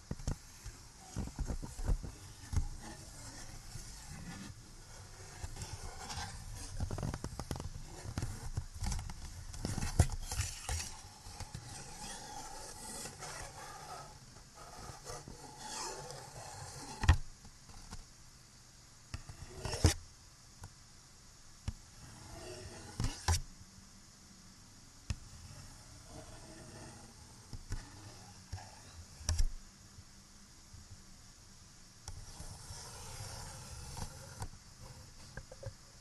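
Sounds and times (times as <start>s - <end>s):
scratching and rubbing objects: 0.0s - 18.0s, 19.1s - 20.0s, 21.9s - 23.4s, 25.1s - 29.6s, 32.1s - 35.9s
background hiss: 0.0s - 36.0s.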